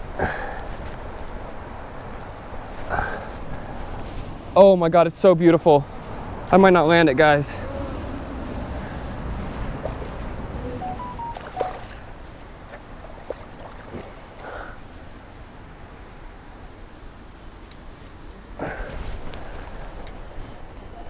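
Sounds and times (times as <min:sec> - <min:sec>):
water sloshing: 0:11.3 - 0:14.4.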